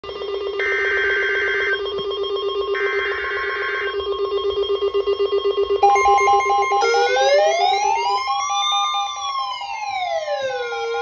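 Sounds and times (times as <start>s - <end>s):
beeping radio alarm: 0.0s - 11.0s
pulsing ringing alarm tone: 0.0s - 11.0s
screeching digital alert bursts: 5.8s - 9.4s.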